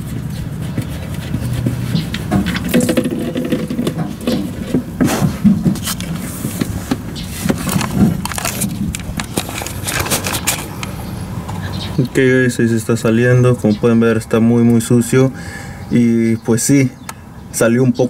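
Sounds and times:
plastic drain pan handled: 2.2s - 10.6s.

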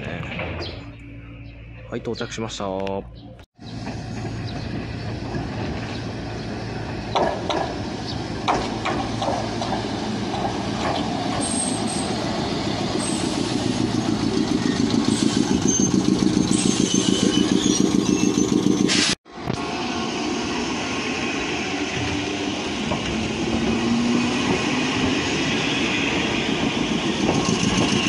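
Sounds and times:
train low hum: 0.0s - 28.0s
faint high brake squeals: 15.1s - 18.9s.

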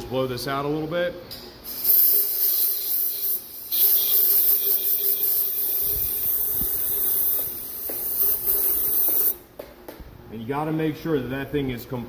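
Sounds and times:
compressed air blow gun hissing: 1.6s - 9.4s.

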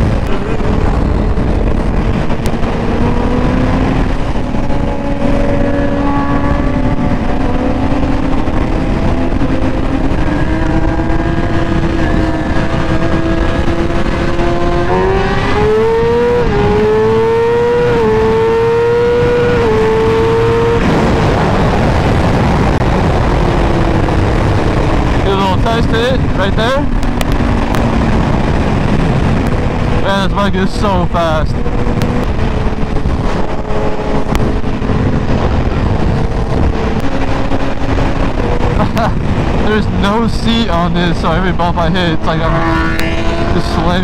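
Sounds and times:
motorcycle engine revving through gears: 0.0s - 44.0s
wind rush: 0.0s - 44.0s.

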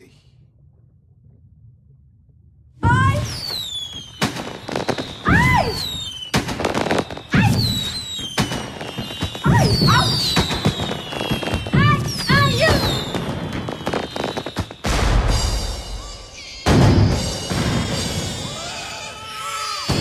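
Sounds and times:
falling whistling tones: 3.0s - 20.0s
sharp bangs: 3.4s - 18.6s.

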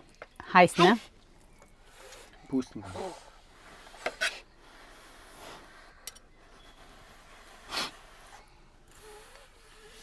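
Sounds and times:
breathy puff: 7.2s - 10.0s.

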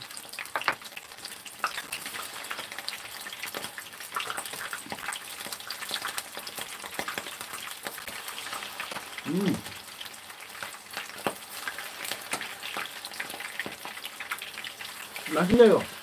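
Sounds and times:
food deep-frying in oil: 0.0s - 16.0s.

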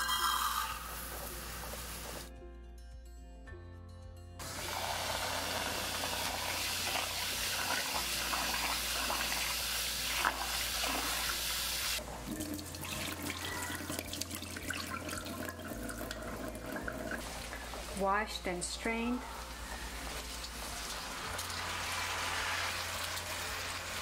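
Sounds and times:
faucet running water: 4.4s - 18.1s, 19.7s - 24.0s.

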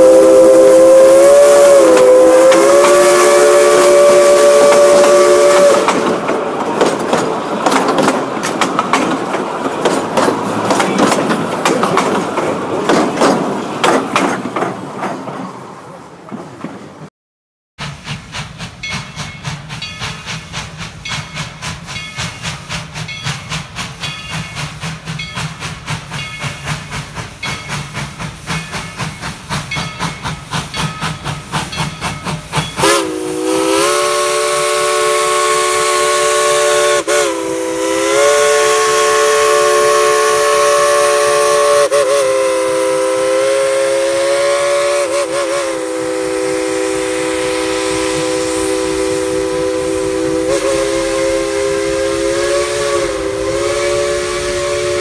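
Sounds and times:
chime steam whistle: 0.0s - 6.2s, 18.7s - 55.0s
steam locomotive rhythmic beating: 0.0s - 15.5s, 17.8s - 55.0s.

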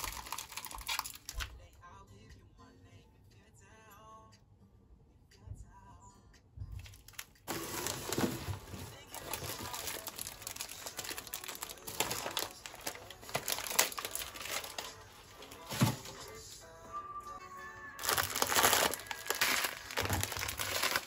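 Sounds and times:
plastic bags crinkling: 0.0s - 1.5s, 6.8s - 16.4s, 18.0s - 21.0s.

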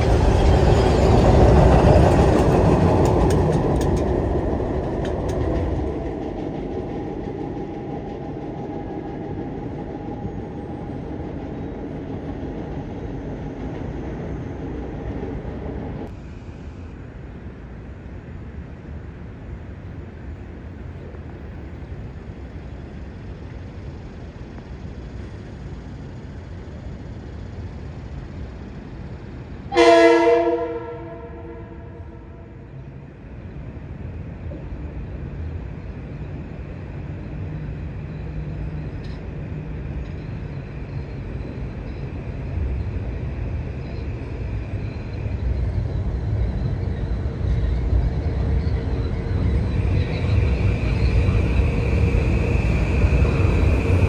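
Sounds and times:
train rumble: 0.0s - 54.0s
train horn blast: 29.7s - 32.6s.

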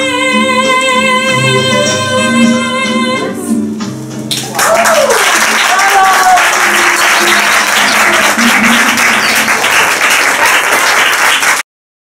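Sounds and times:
music playing: 0.0s - 10.9s
audience applauding: 4.3s - 11.7s.

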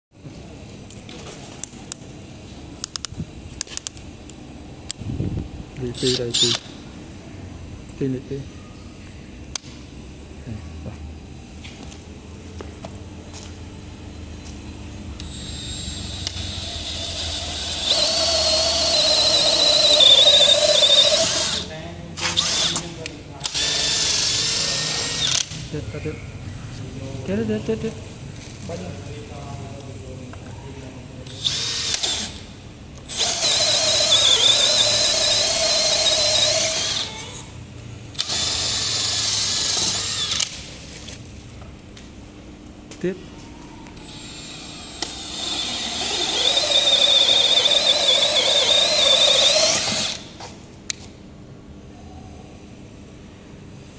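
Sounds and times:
drill boring into wood: 6.0s - 6.6s, 15.2s - 25.4s, 31.3s - 32.4s, 33.0s - 37.2s, 38.2s - 40.4s, 44.0s - 50.3s.

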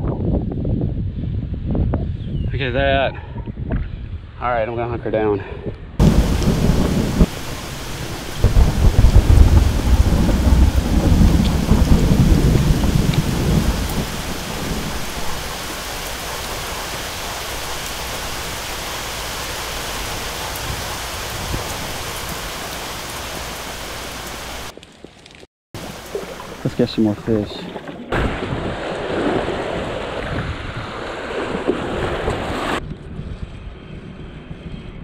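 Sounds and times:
thunder rumbling: 6.0s - 24.8s, 25.8s - 32.8s
steady rain hiss: 6.0s - 27.8s.

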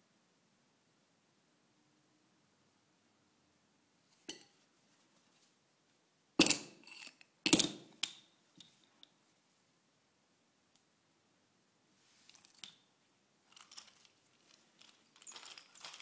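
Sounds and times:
metallic clinks and rattles: 12.3s - 12.8s, 13.5s - 16.0s.

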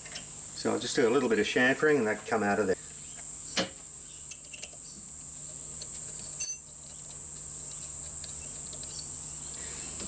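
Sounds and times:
ringing metal clink: 6.4s - 6.7s.

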